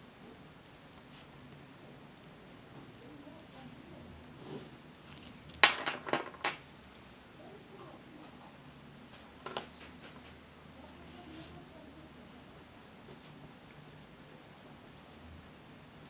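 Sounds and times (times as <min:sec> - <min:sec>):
hard objects clinking on desk: 0:05.1 - 0:06.6.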